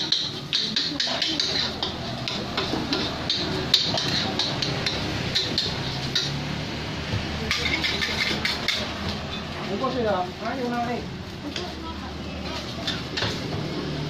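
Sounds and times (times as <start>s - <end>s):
metal spatula scraping a wok: 0.0s - 9.6s.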